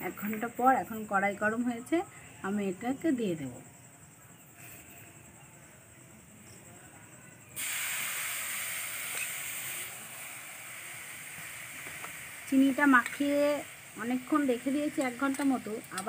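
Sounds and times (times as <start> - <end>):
coconut sizzling in hot pan: 7.5 - 16.0.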